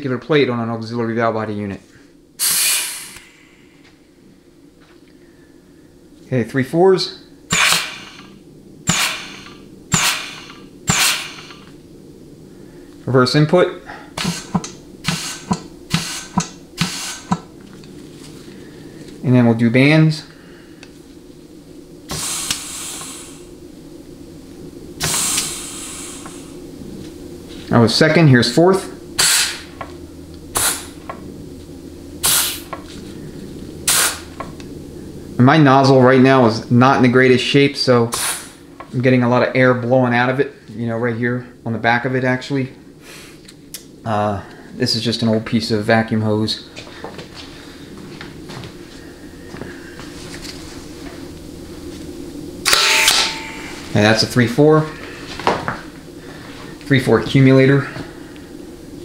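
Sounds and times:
compressed air blasts with hiss: 2.4 - 3.6, 7.5 - 11.7, 14.1 - 17.5, 22.1 - 23.6, 25.0 - 26.7, 29.2 - 29.8, 30.5 - 31.2, 32.2 - 32.9, 33.8 - 34.5, 38.1 - 38.8.

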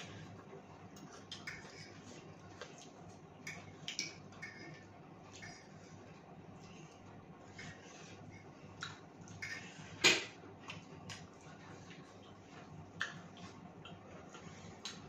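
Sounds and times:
chewing and crunching fried chicken: 10.5 - 15.0.

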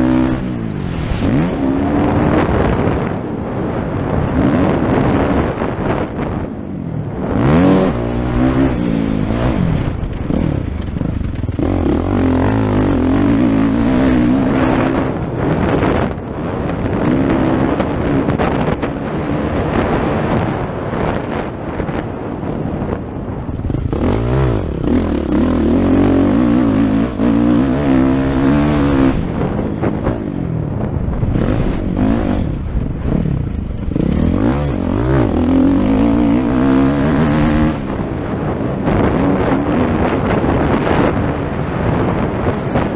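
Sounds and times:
dirt bike engine revving: 0.0 - 3.0, 7.1 - 20.4, 23.3 - 30.4, 31.1 - 41.5.

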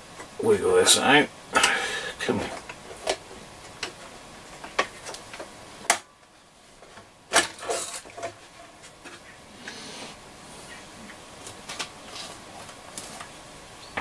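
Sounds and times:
radio chassis clicking and knocking: 2.4 - 6.0.

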